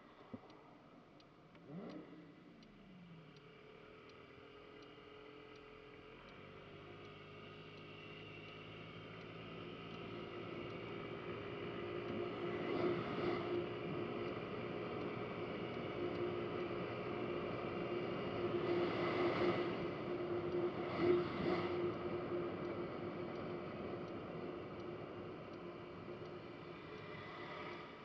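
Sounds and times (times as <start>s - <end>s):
passing car: 7.2s - 28.0s.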